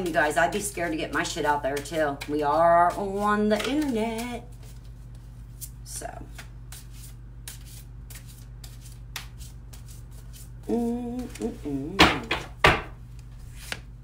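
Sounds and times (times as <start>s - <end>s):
cards being shuffled: 3.6s - 10.5s, 13.1s - 14.0s
person humming: 10.6s - 12.5s
loud knocks: 12.0s - 13.0s.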